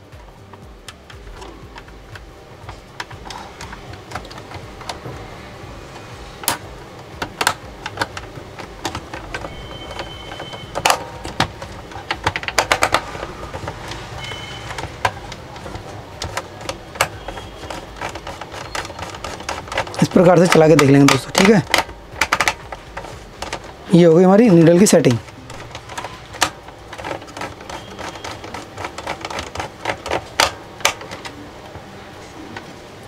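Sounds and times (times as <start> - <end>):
radio dial clicks and rattles: 6.4 - 31.4.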